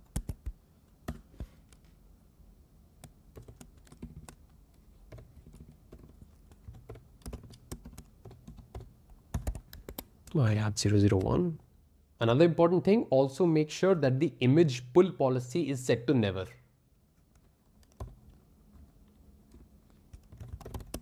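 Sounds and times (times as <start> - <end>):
keyboard typing: 0.0 - 1.8, 3.0 - 10.4, 17.2 - 21.0.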